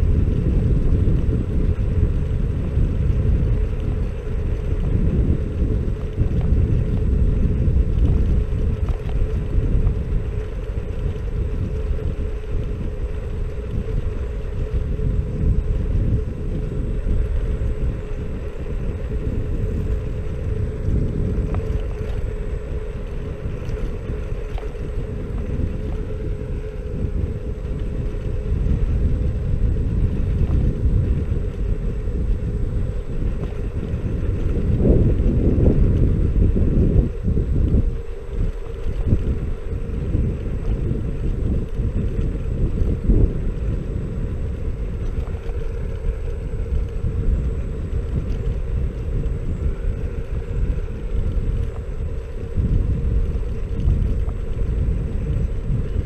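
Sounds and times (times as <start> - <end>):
electric motor whine: 0.0 - 56.0
wind and road noise rumble: 0.0 - 56.0.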